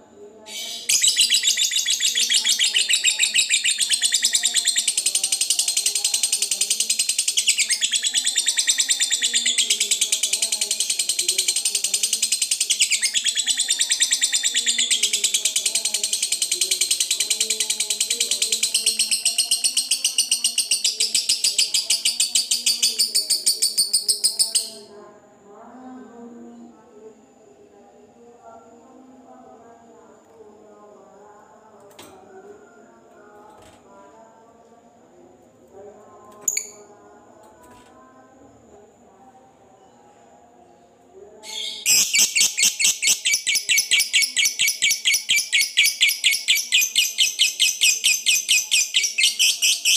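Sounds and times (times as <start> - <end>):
lovebird trilling chatter: 0.5 - 24.8, 41.5 - 49.9.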